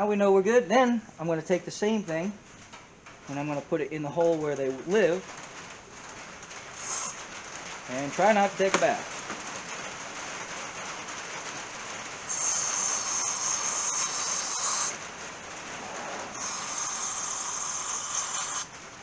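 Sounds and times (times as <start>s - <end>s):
rain on a roof: 0.0s - 19.0s
aerosol can hissing: 6.8s - 7.2s, 12.3s - 15.0s, 16.3s - 18.7s.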